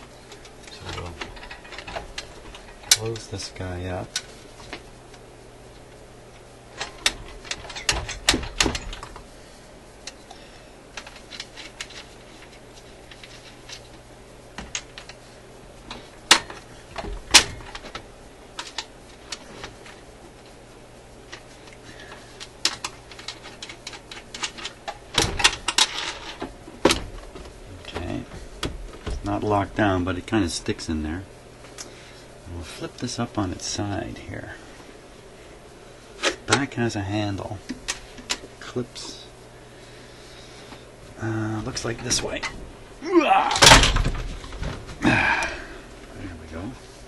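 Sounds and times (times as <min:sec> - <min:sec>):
faint low hum: 0:00.0 - 0:47.0
sheet metal clicks and clunks: 0:06.8 - 0:09.2, 0:22.6 - 0:29.3.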